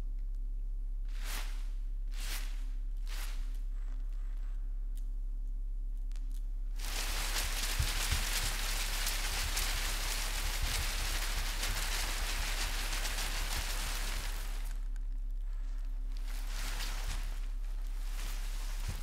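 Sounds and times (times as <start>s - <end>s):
low steady hum: 0.0s - 19.0s
newspaper crumpling: 6.8s - 14.8s, 16.2s - 19.0s.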